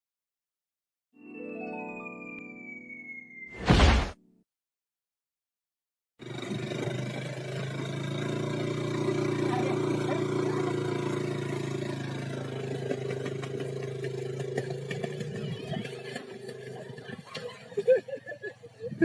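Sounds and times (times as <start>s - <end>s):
scooter engine running: 6.2s - 19.0s.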